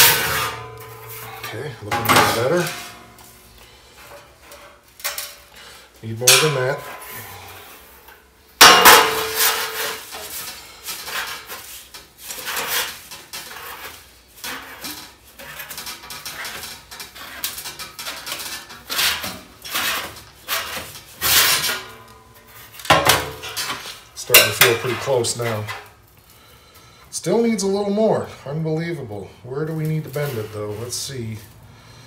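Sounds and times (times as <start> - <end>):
sharp metal clang: 0.0 - 3.4, 6.2 - 7.1, 8.6 - 10.0, 24.2 - 25.1
sheet metal clanking and rattling: 0.0 - 3.4, 8.6 - 10.2, 14.5 - 25.8.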